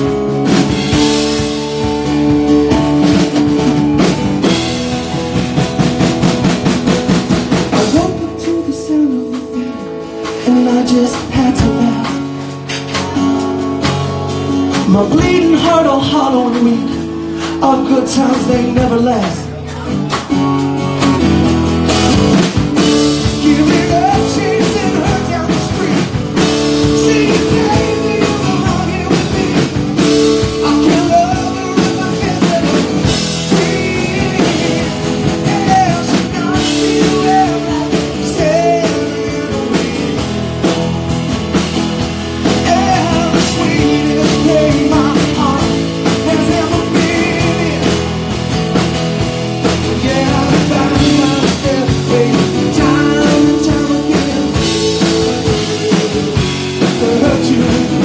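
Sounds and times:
drum kit: 0.0 - 58.0
electric bass: 0.0 - 58.0
keyboard: 0.0 - 58.0
strummed acoustic guitar: 0.0 - 58.0
man singing: 7.6 - 13.6, 14.6 - 20.6, 22.4 - 40.9, 42.0 - 48.8, 49.6 - 58.0.

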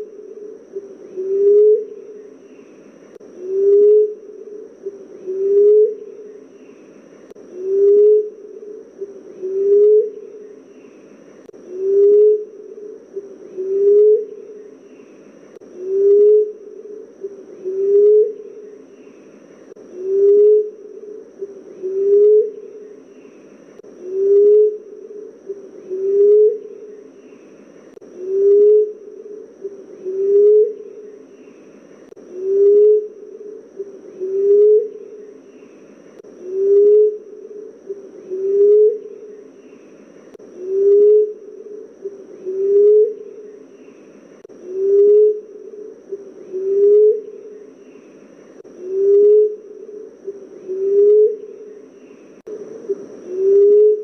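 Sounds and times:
dove cooing: 0.0 - 54.0.

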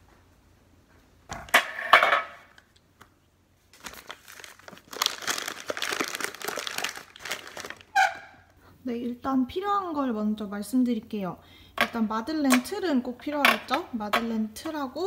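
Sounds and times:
packaging crinkling and rustling: 3.6 - 8.0.

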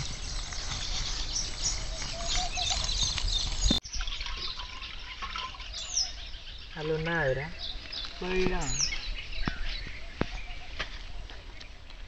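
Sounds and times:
small birds chirping: 0.0 - 12.0
liquid pouring: 3.9 - 6.0.

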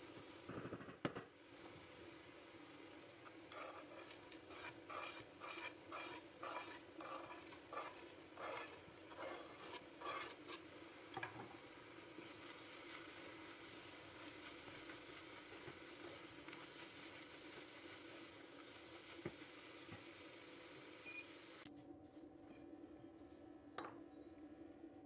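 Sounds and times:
wooden spatula stirring: 3.2 - 20.1.

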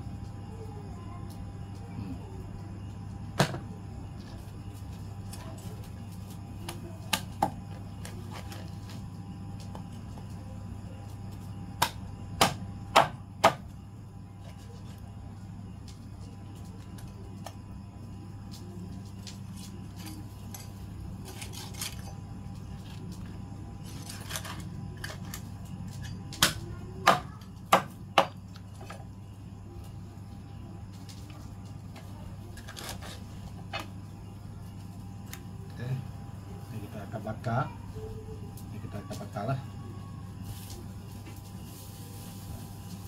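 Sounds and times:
steady low hum: 0.0 - 43.0
cleaver chopping on wooden board: 11.8 - 13.6.

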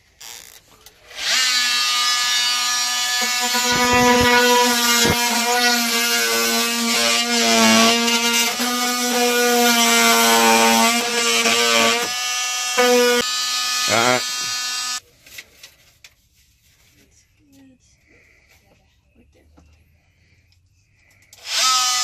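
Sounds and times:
oscillating multi-tool cutting: 0.2 - 15.0, 21.4 - 22.0.

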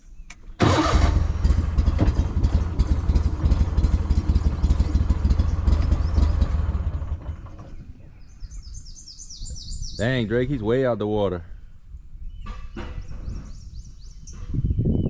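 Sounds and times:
small boat motor running: 0.7 - 8.4.

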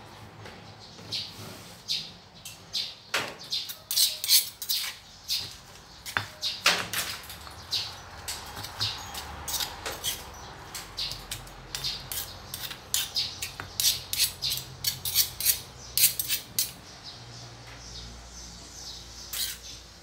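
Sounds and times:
metal spoon scraping stone mortar: 3.6 - 16.8, 19.2 - 19.8.

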